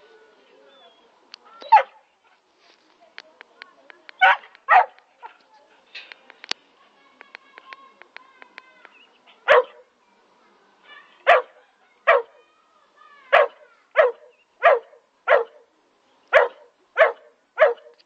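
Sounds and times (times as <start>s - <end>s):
puppy barking: 1.6s - 2.0s, 4.2s - 5.4s, 9.4s - 9.8s, 11.3s - 12.4s, 13.3s - 15.6s, 16.3s - 18.0s.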